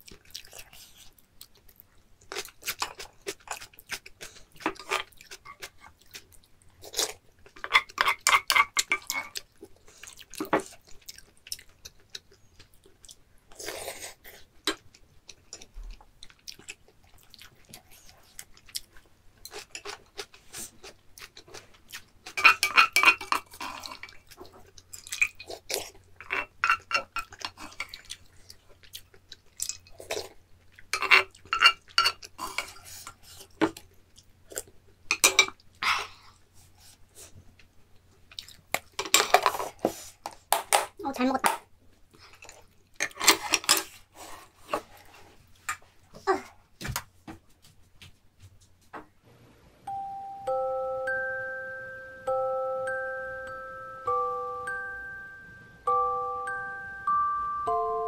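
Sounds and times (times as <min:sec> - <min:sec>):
person chewing: 0:00.0 - 0:36.9, 0:38.3 - 0:40.1.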